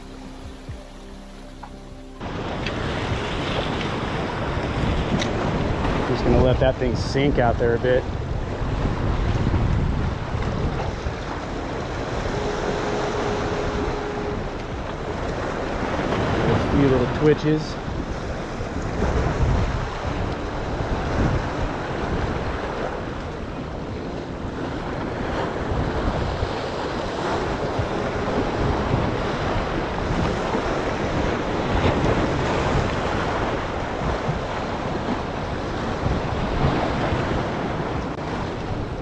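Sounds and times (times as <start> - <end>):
surf washing against rocks: 2.2 - 39.0
wind buffeting microphone: 2.2 - 39.0.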